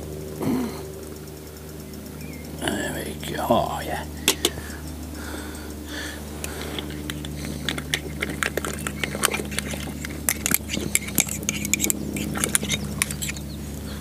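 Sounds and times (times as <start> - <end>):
steady low hum: 0.0 - 14.0
spoon clinking against mug: 7.6 - 13.4.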